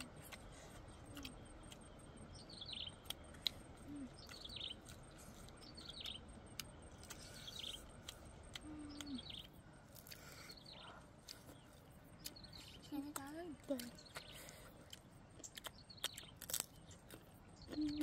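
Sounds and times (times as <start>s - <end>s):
bird chirping call: 2.3s - 3.2s, 3.8s - 6.3s, 7.1s - 8.0s, 8.8s - 9.6s.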